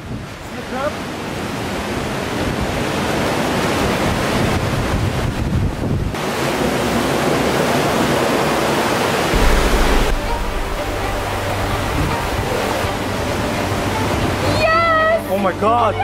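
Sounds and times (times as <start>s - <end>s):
wind buffeting microphone: 9.3s - 13.4s.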